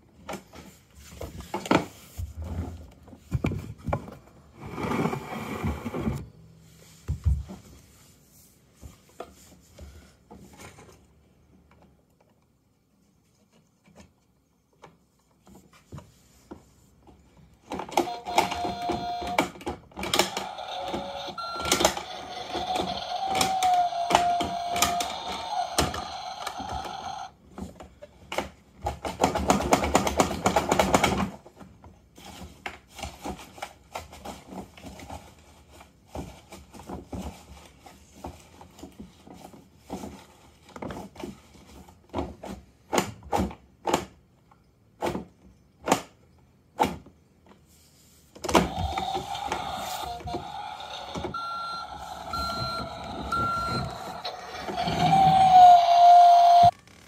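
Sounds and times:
plastic toys clicking and knocking: 17.7s - 31.6s, 48.4s - 56.7s
toy electronic tones: 18.0s - 19.4s, 20.3s - 27.3s, 48.7s - 56.8s.

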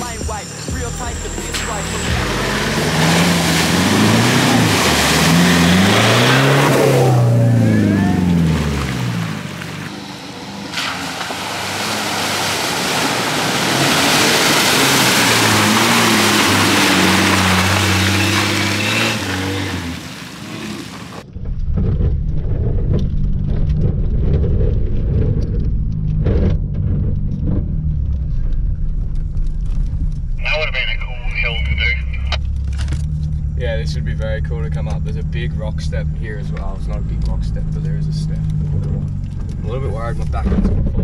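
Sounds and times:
engine revving: 0.0s - 41.0s
engine rumble inside cab: 0.0s - 41.0s
tyres splashing through mud: 0.0s - 41.0s
vehicle knocks and rattles: 21.2s - 30.3s, 38.4s - 41.0s.

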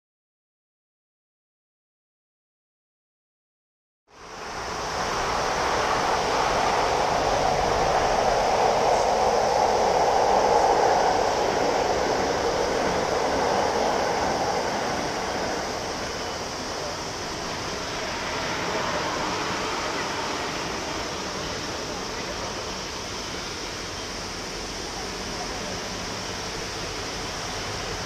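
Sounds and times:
jet engines taxiing: 4.1s - 28.0s.

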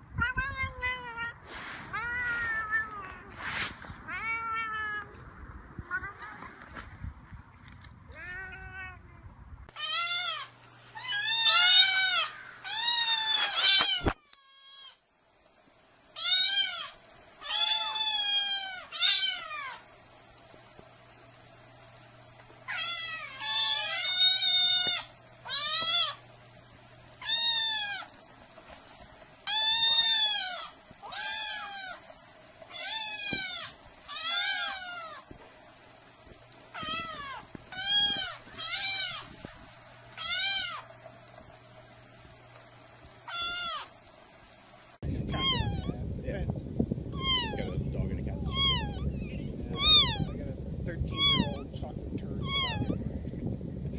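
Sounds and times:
kittens mewing: 9.7s - 15.0s, 16.2s - 19.8s, 22.7s - 26.2s, 27.2s - 28.1s, 29.5s - 32.0s, 32.7s - 35.3s, 36.7s - 39.3s, 40.2s - 40.9s, 43.2s - 44.0s, 45.2s - 46.0s, 47.1s - 47.8s, 48.4s - 50.4s, 51.1s - 51.6s, 52.4s - 53.0s.

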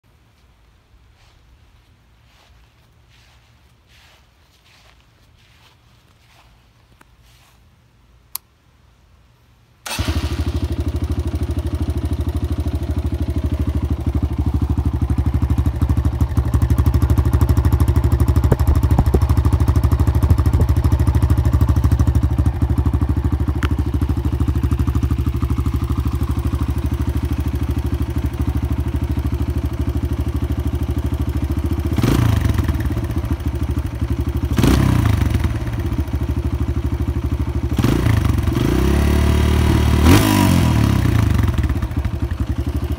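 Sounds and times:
motorcycle engine idling: 9.9s - 42.9s.

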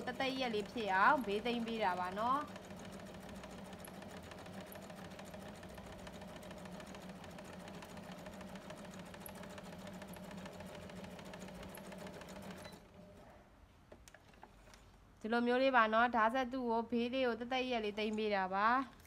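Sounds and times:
sewing machine stitching: 0.0s - 13.2s.

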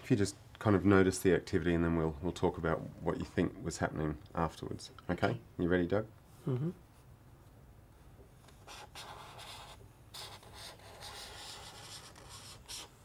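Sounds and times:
pen scratching on paper: 8.6s - 12.9s.

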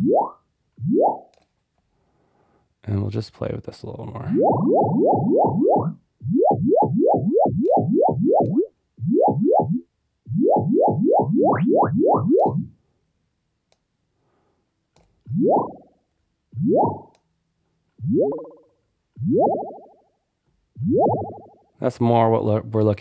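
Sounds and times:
synthesized water droplet bloops: 0.0s - 1.3s, 4.3s - 12.8s, 15.3s - 15.9s, 16.6s - 17.1s, 18.0s - 19.9s, 20.8s - 21.5s.

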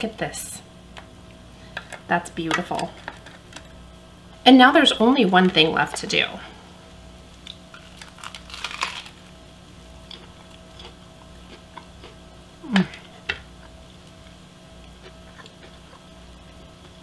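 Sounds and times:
bread crunching in bite: 7.4s - 9.4s
faint chewing: 10.0s - 17.0s
person humming: 12.6s - 13.1s.

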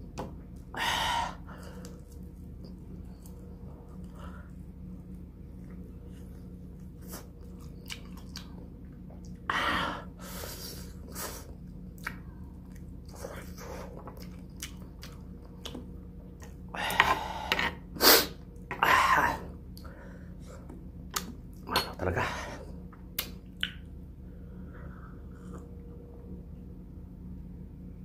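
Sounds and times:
biting and chewing meat: 1.7s - 9.5s, 11.5s - 16.7s
wet mouth clicks and smacks: 23.1s - 23.9s.

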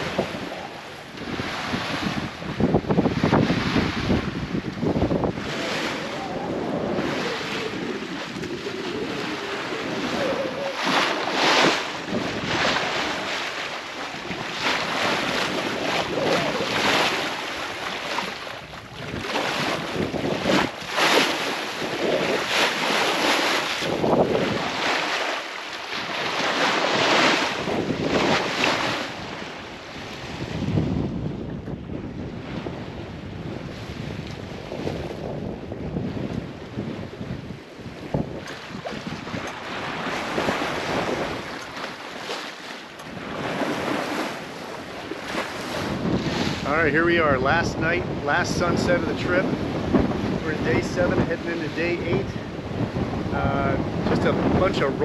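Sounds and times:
water rushing along hull: 0.0s - 55.0s
wind buffeting microphone: 0.0s - 55.0s.

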